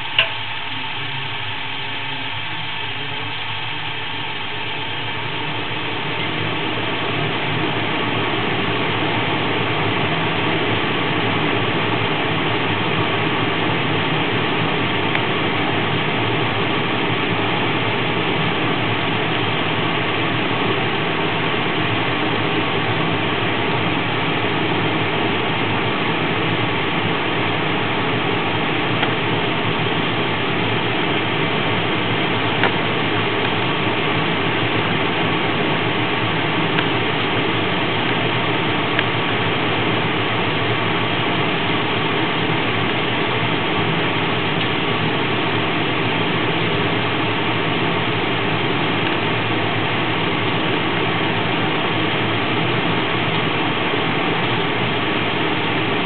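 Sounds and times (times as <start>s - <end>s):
gas furnace burners rushing: 0.0s - 56.0s
sharp click: 0.1s - 0.4s.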